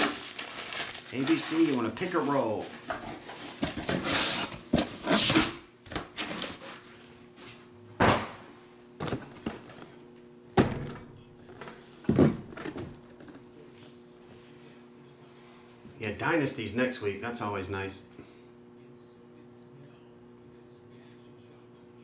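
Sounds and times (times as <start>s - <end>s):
cardboard boxes knocking on table: 9.0s - 9.8s, 12.1s - 13.4s.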